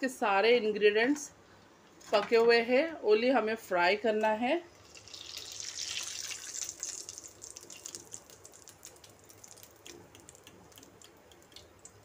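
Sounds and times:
chicken deep-frying in oil: 0:04.7 - 0:12.0.

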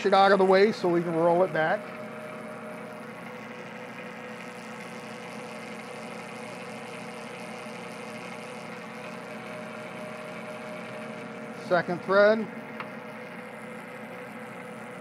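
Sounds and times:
metal lathe humming: 0:00.0 - 0:15.0.

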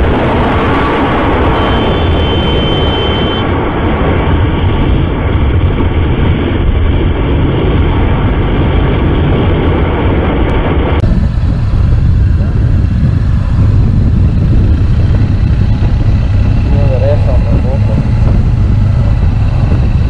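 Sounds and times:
motorcycle engine drone: 0:00.0 - 0:20.0
wind noise: 0:00.0 - 0:20.0
faint high whine: 0:01.2 - 0:03.5.

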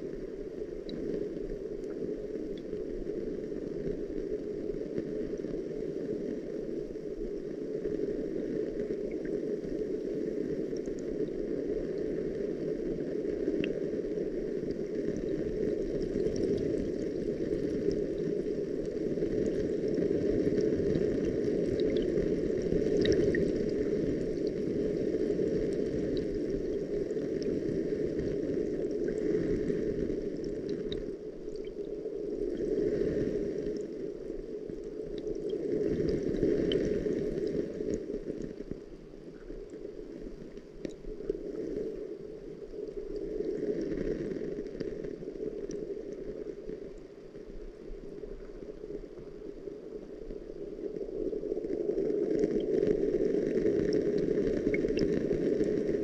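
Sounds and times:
muffled water rushing: 0:00.0 - 0:56.0.

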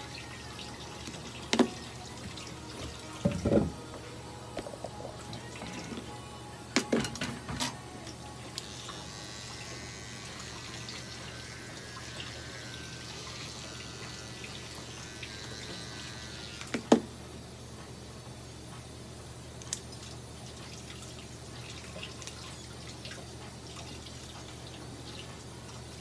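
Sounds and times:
pet trimmer high hiss: 0:08.5 - 0:17.0.

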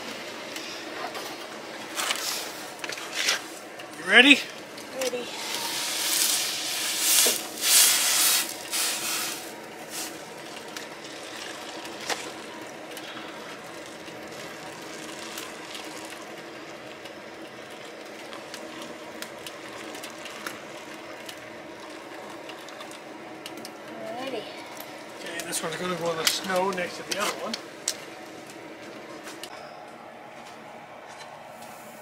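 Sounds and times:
syrup trickling into funnel: 0:05.3 - 0:12.7, 0:13.5 - 0:16.5.

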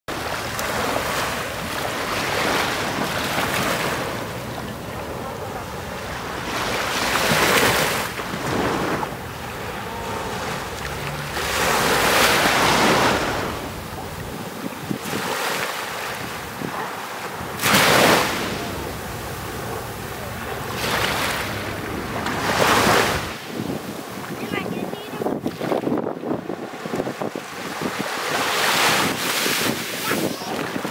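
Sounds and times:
sea waves washing on shore: 0:00.1 - 0:30.9
wind rumbling on microphone: 0:00.2 - 0:30.9.

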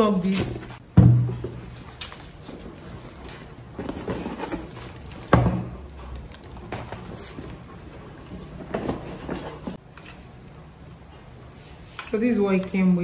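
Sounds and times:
cardboard scraping and rustling: 0:01.4 - 0:05.6.

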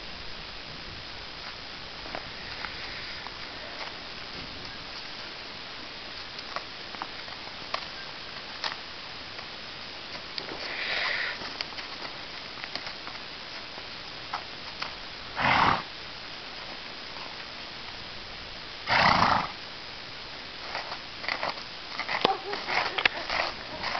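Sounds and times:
faint hiss: 0:00.0 - 0:23.9
horse snorting: 0:15.4 - 0:15.9, 0:18.8 - 0:19.6.

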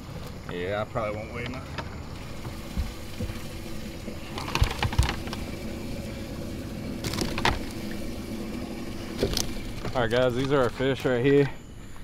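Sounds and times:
low mechanical hum: 0:00.0 - 0:12.0
dull knocks: 0:01.8 - 0:05.4
fish rustling in water: 0:01.9 - 0:11.2.

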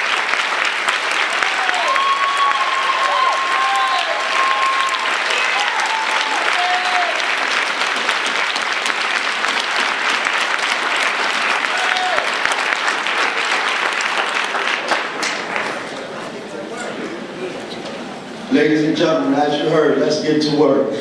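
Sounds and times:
audience applauding: 0:00.0 - 0:16.4.

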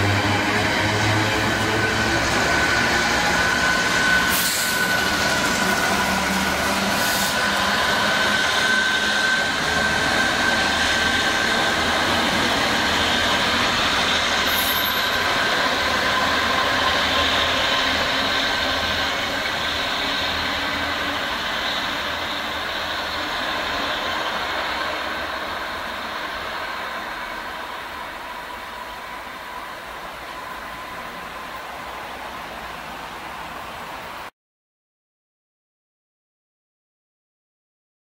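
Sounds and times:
freight wagons rumbling on rails: 0:00.0 - 0:34.2
diesel locomotive engine working: 0:00.0 - 0:34.3.

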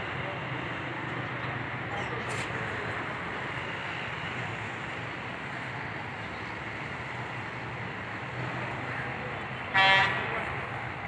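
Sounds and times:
traffic and engine noise: 0:00.0 - 0:11.0.

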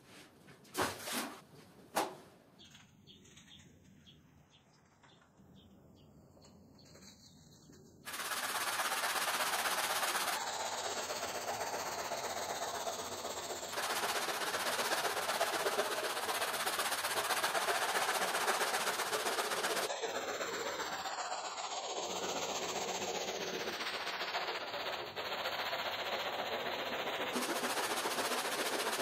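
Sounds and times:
plastic brush scrubbing rug: 0:08.1 - 0:29.0.

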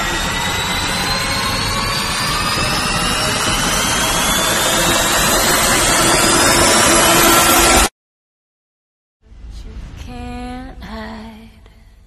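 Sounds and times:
dense wash of noise: 0:00.0 - 0:07.9
whine climbing in pitch: 0:00.0 - 0:07.9.

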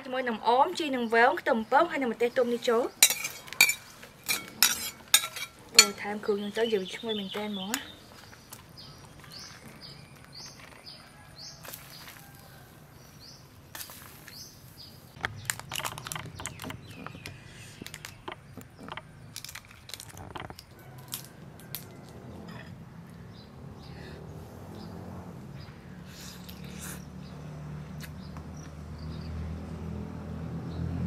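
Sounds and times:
spoon clinking glass bowl: 0:03.0 - 0:06.0
bird chirping: 0:05.7 - 0:12.1, 0:13.0 - 0:19.4
shrimp shell cracking: 0:17.8 - 0:21.9.

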